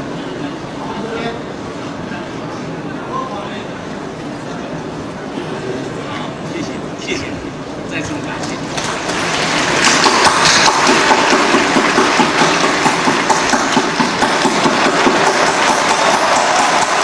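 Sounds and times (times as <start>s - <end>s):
audience applauding: 8.7s - 17.0s.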